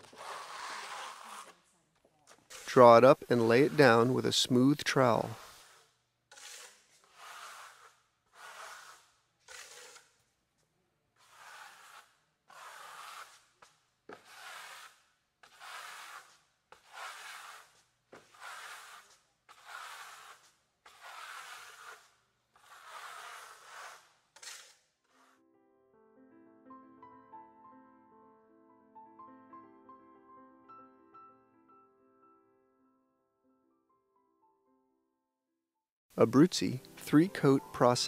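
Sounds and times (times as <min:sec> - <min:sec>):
trowel scraping wet stucco: 0:00.0 - 0:10.2, 0:11.2 - 0:25.4.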